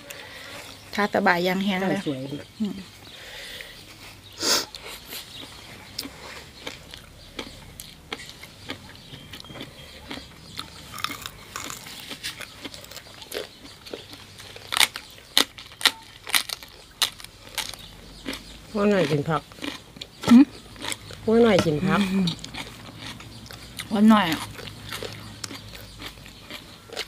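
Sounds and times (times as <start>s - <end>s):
wet chewing and lip smacks: 4.6s - 21.3s, 22.2s - 27.0s.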